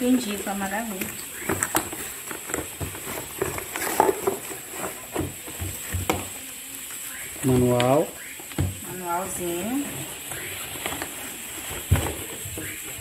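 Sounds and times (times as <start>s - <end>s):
cardboard box rustling and scraping: 1.3s - 6.3s, 9.4s - 13.0s.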